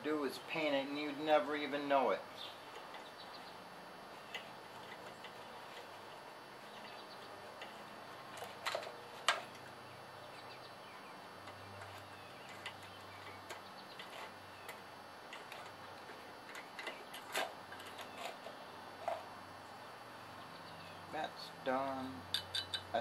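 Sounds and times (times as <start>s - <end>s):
small metal and plastic parts clicking: 11.4s - 19.2s.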